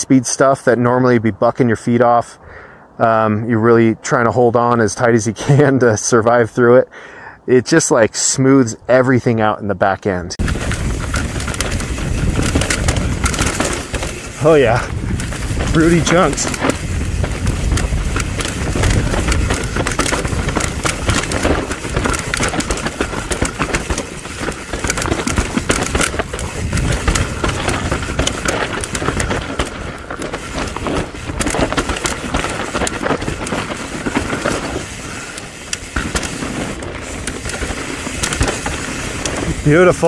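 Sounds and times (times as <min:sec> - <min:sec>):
bike rattling: 0:10.4 - 0:40.0
tyres crunching over roots and rocks: 0:10.4 - 0:40.0.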